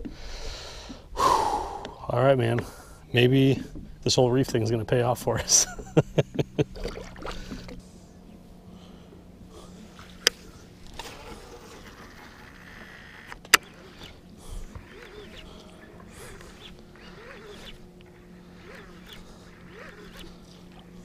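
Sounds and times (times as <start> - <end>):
fishing rod clicks: 10.2 - 21.0.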